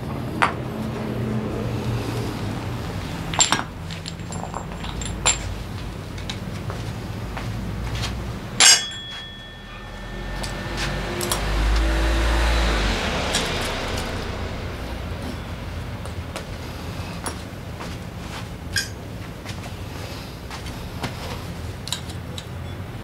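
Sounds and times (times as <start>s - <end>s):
low background rumble: 0.0s - 22.0s
metal parts clinking: 3.3s - 6.4s, 8.6s - 9.5s
loud metallic clank: 8.6s - 17.7s.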